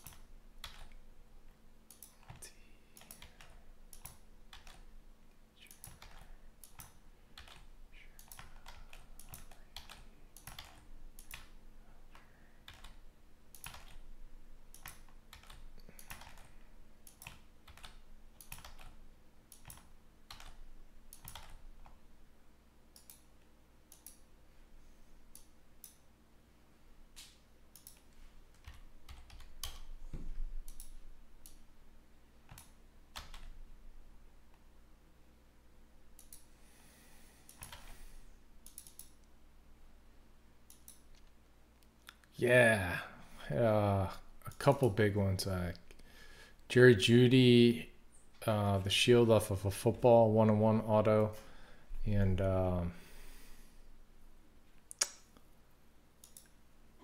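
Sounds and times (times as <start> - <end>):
computer keyboard typing: 0.0 - 1.0, 1.9 - 4.9, 5.6 - 14.1, 14.7 - 22.0, 23.0 - 23.3, 23.9 - 24.2, 27.2 - 29.9, 30.6 - 31.6, 32.5 - 33.6, 37.5 - 38.0, 38.6 - 39.2
faint electrical hum: 0.0 - 57.0.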